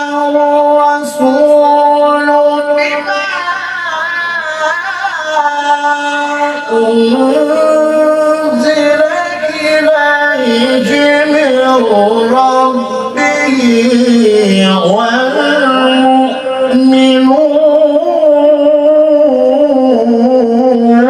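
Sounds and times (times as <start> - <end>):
man reciting melodically: 0.0 - 21.0.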